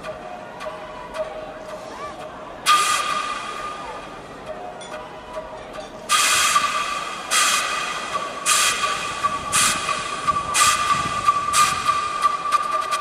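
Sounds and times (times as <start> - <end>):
high held music tone: 0.0 - 13.0
hissing swell: 6.1 - 13.0.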